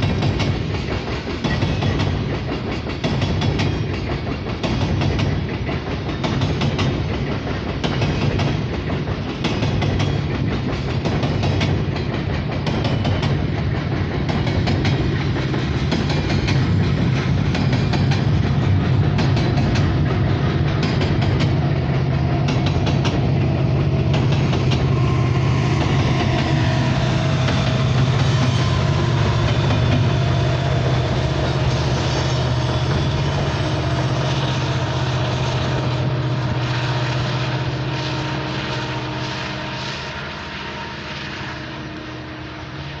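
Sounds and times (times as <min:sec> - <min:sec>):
train wheels clicking on bridge: 0:00.0 - 0:41.6
diesel locomotive drone: 0:00.0 - 0:43.0.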